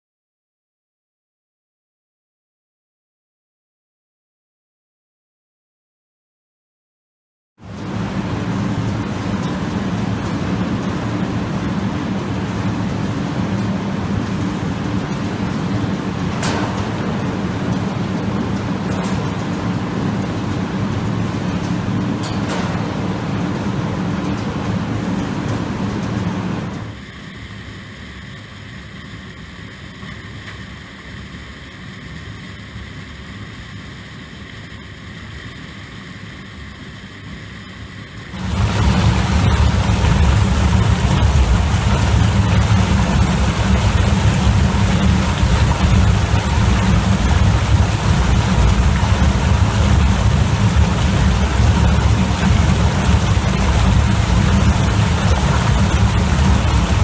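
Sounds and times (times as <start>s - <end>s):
deep rumble of barrel washer: 7.6s - 27.1s, 38.3s - 57.0s
potato destoner running: 38.3s - 57.0s.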